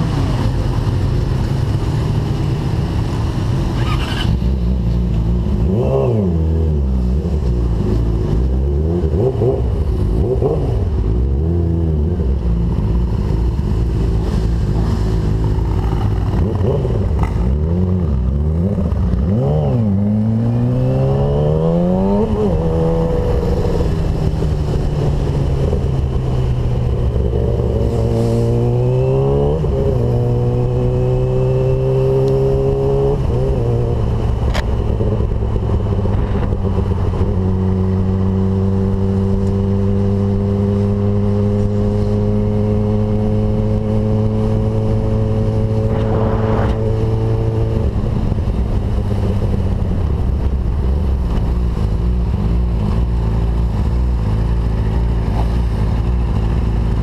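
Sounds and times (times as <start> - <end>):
motorcycle engine accelerating: 0.0 - 57.0
wind rumble: 9.4 - 31.5, 32.7 - 39.1, 41.6 - 52.5.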